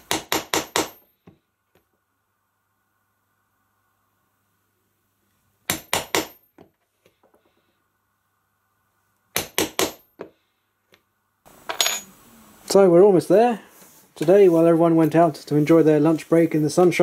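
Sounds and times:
hammer striking steel chisel: 0.0s - 1.1s, 5.7s - 6.6s, 9.4s - 10.3s.

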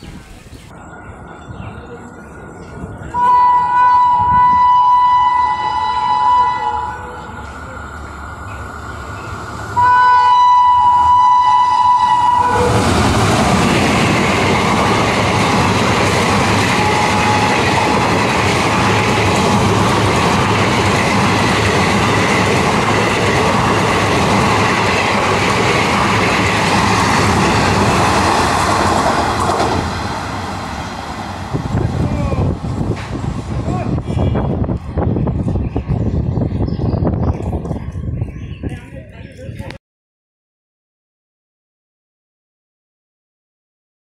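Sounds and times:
locomotive horn blasts: 3.1s - 7.4s, 9.8s - 12.9s, 16.7s - 18.1s
train wheels on rails: 5.4s - 9.9s, 12.0s - 39.7s.

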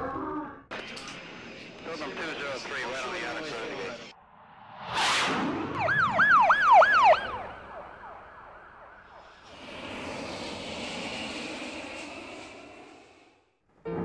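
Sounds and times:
jet engine roar: 0.7s - 13.6s
jet whooshing past: 4.1s - 8.0s, 8.8s - 13.6s
siren wailing rapidly: 5.8s - 9.2s.

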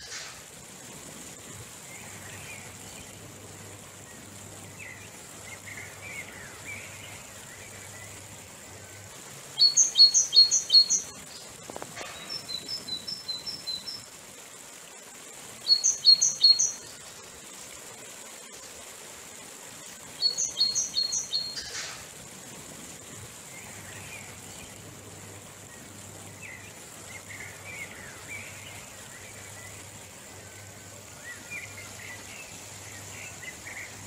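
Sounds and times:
songbirds calling: 0.0s - 22.3s, 22.9s - 34.0s
river rushing over rapids: 0.0s - 34.0s.

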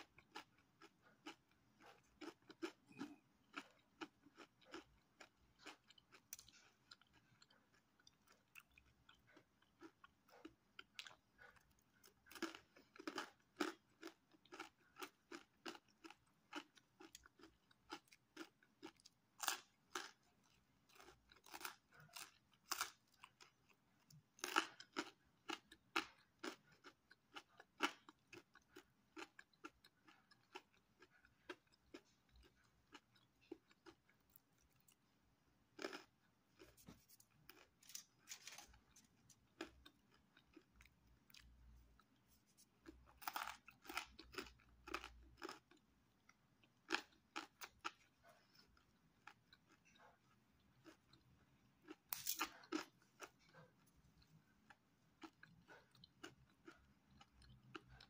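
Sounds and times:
crunching pizza crust: 35.8s - 41.6s.

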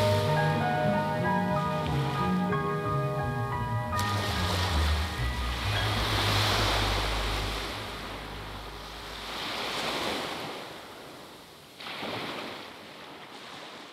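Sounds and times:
waves washing up a beach: 0.0s - 2.0s, 4.0s - 13.9s
background music: 0.0s - 9.4s.

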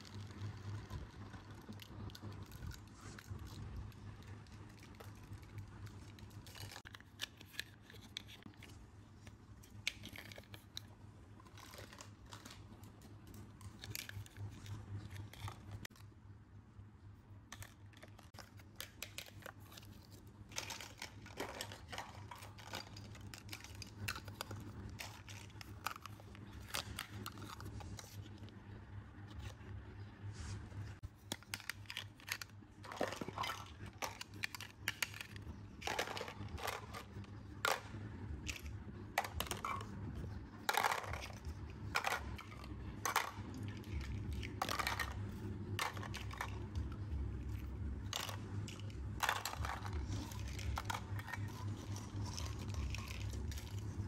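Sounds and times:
plastic toys clicking and clattering: 0.0s - 16.0s, 17.5s - 28.4s, 31.0s - 54.0s
low steady hum: 0.0s - 54.0s
crinkly rustling: 29.3s - 54.0s.

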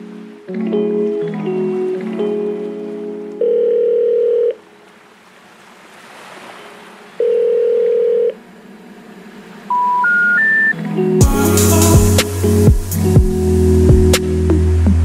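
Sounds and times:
telephone ringing tone: 3.4s - 4.7s, 7.2s - 8.4s
rising intercept tone beeps: 9.7s - 10.8s.

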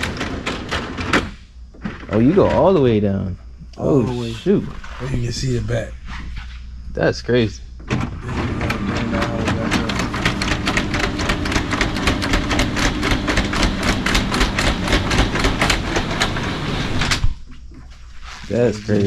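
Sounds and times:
motor hum: 6.9s - 19.0s
rapid clicking clatter: 9.1s - 17.2s.

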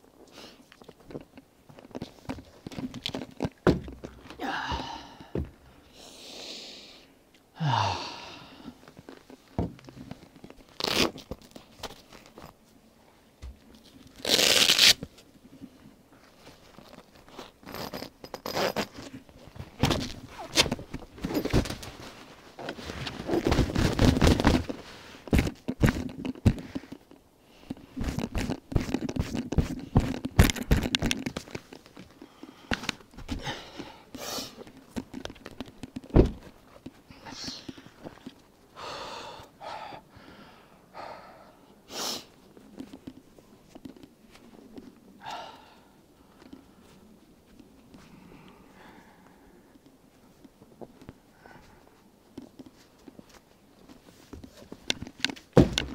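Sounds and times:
knocks thuds and scraping: 2.3s - 4.4s, 9.6s - 10.1s, 36.0s - 36.6s, 55.4s - 55.9s.

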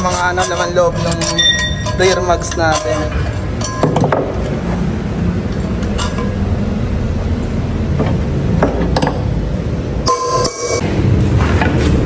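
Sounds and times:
metallic clinks and taps: 0.0s - 4.6s.

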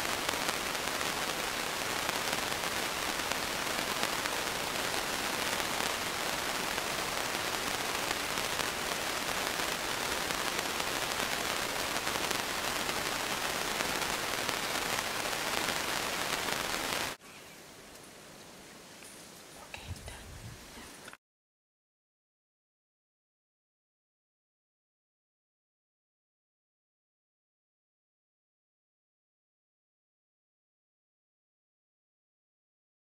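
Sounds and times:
dense crackling hiss: 0.0s - 21.2s.

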